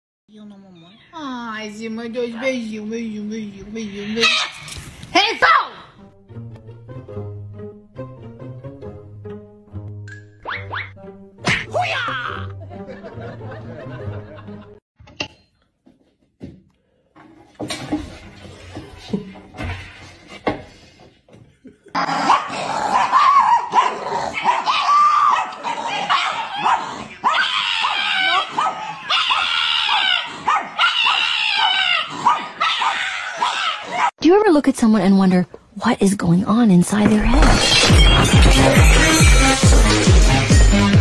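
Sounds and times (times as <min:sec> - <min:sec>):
small dogs barking: 0:22.1 - 0:34.1.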